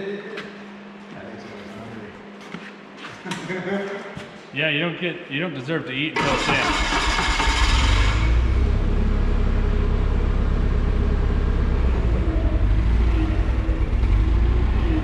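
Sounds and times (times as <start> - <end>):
forklift engine idling: 6.2 - 15.0.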